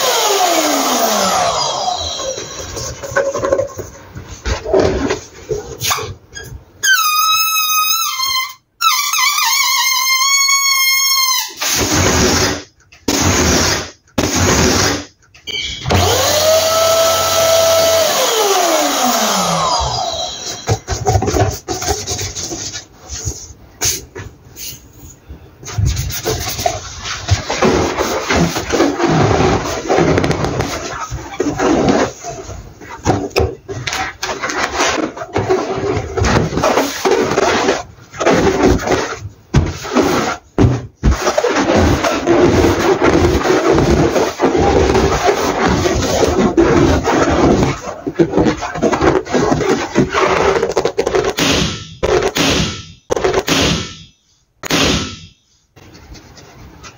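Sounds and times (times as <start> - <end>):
electric balloon pump motor whine: 0.0 - 2.6, 15.8 - 20.6
rubbing on balloon rubber: 20.5 - 51.4.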